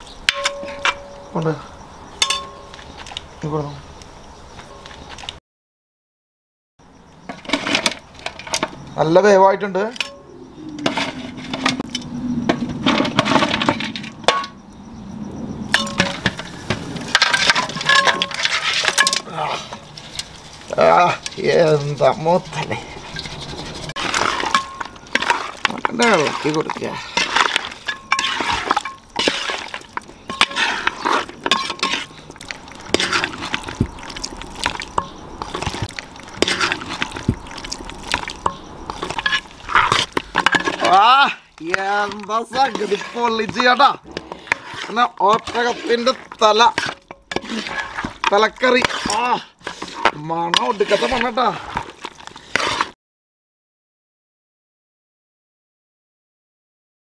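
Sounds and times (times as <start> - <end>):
metal ladle clinking in pots: 0.3 - 1.3, 2.2 - 2.8, 15.7 - 16.4, 17.1 - 19.3, 24.0 - 37.3
metallic ring: 0.3 - 1.4
ladle scraping metal pot: 7.3 - 8.8, 9.9 - 14.5, 15.7 - 53.0
thick curry squelching: 17.4 - 53.0.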